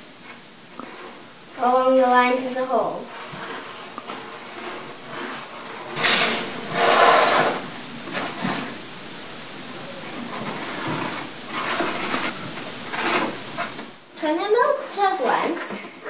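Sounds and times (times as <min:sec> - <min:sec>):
box and jug scraping on countertop: 0:02.2 - 0:08.8, 0:10.2 - 0:14.0.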